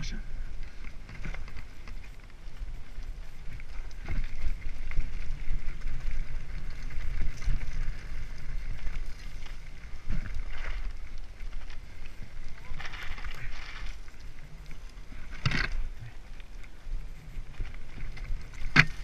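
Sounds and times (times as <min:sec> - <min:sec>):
tyres rolling on dirt trail: 0:00.0 - 0:19.0
wind on microphone: 0:00.0 - 0:19.0
bike knocks and rattles: 0:15.2 - 0:15.9, 0:17.6 - 0:19.0.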